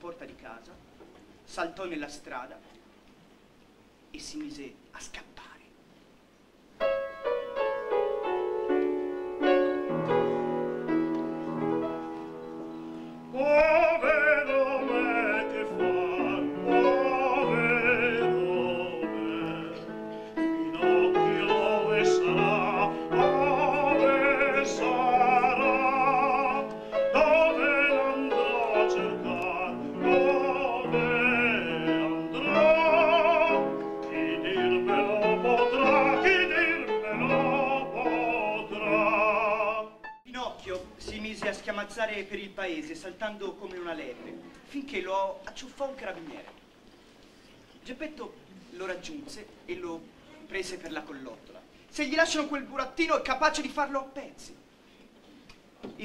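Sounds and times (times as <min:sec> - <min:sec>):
operatic singing with vibrato: 0:13.3 - 0:40.0.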